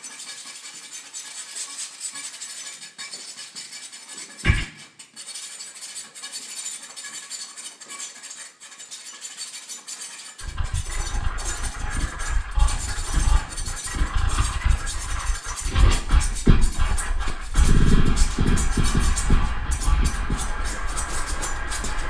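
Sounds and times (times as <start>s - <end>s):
crackling hiss with clicks: 10.4s - 22.0s
heavy bass rumble: 10.4s - 22.0s.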